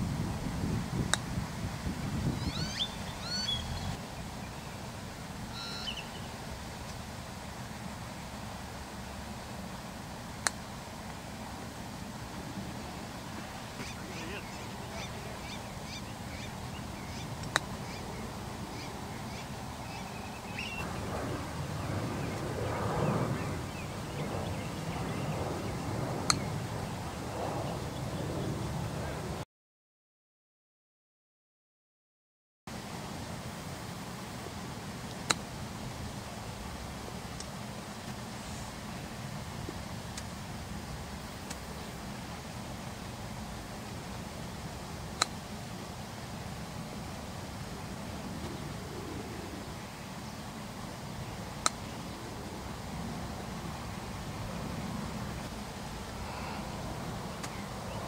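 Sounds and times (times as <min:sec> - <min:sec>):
wind rumble on microphone: 0:00.0 - 0:04.4, 0:12.3 - 0:29.4, 0:46.6 - 0:58.0
bird chirping: 0:02.3 - 0:04.8, 0:05.5 - 0:06.3, 0:13.8 - 0:28.7
golf club striking ball: 0:17.4 - 0:17.8, 0:26.3 - 0:26.5.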